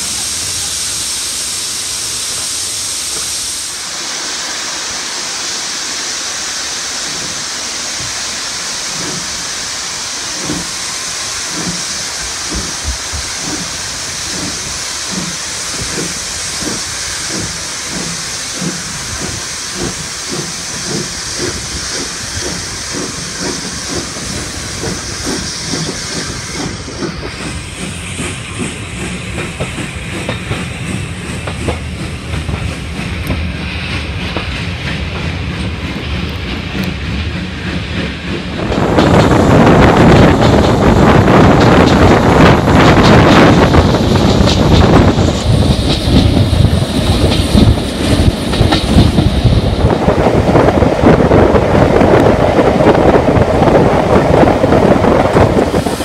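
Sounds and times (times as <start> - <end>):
steam hissing from locomotive: 0.0 - 56.0
train wheels clattering: 7.0 - 56.0.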